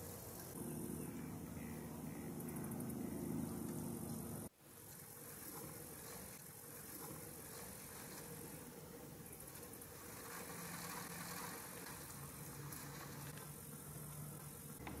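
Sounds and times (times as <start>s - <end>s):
low engine-like hum: 0.0s - 4.6s.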